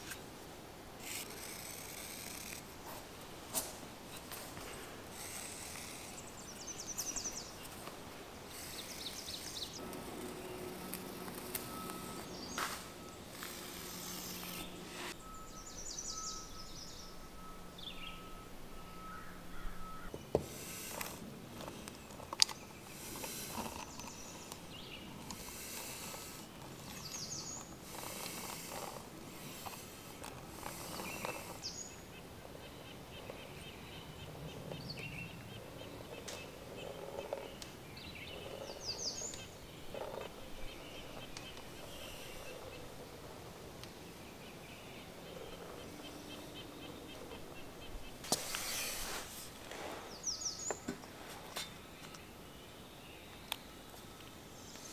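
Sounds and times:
birds chirping: 0.0 - 54.9
faint steady hum: 0.0 - 54.9
rustling and scraping on concrete: 1.0 - 15.2, 20.4 - 31.9, 48.2 - 52.2.

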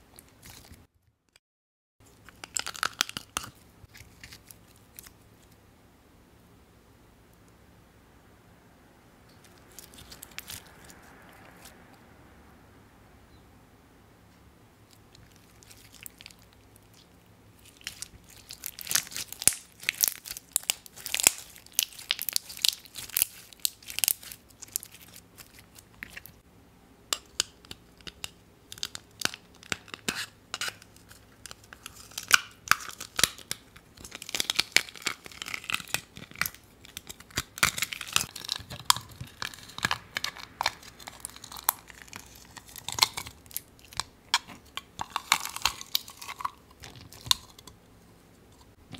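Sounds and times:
crunchy slime squeezed by hand: 17.6 - 26.3.

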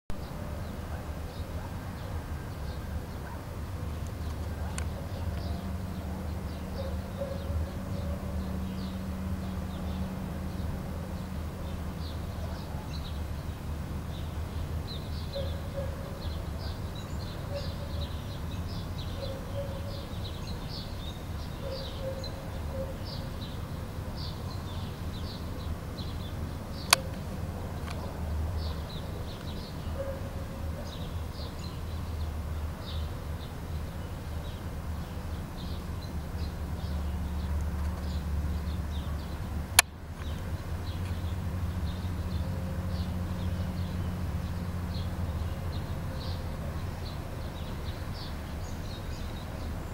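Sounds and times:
small birds chirping: 0.1 - 49.9.

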